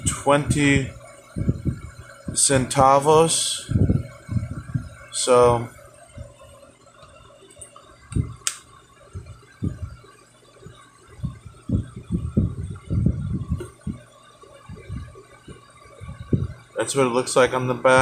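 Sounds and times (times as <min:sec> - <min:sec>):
sharp click: 0:08.4 - 0:08.7.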